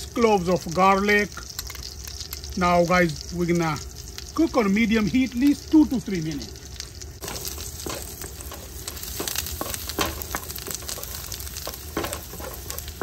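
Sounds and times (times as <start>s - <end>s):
frying sizzle with pops: 0.0s - 13.0s.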